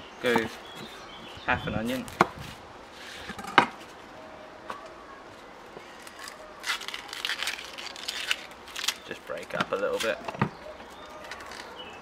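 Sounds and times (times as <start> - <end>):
onion skin crackling: 5.8 - 10.2, 11.0 - 11.8.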